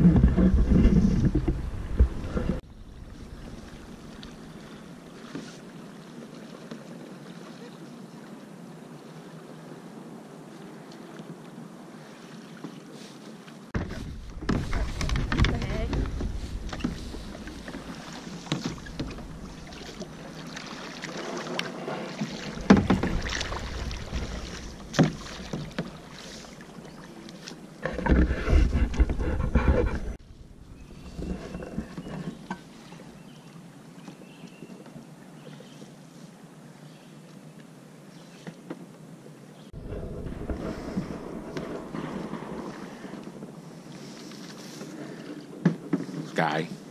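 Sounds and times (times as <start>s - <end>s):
paddle knocking on plastic hull: 0.0s - 2.6s, 13.8s - 26.2s
rumbling: 0.0s - 4.2s, 13.8s - 20.5s, 21.8s - 26.4s, 39.8s - 43.6s
paddle splashing in water: 0.0s - 9.8s, 10.5s - 36.0s, 39.7s - 46.9s.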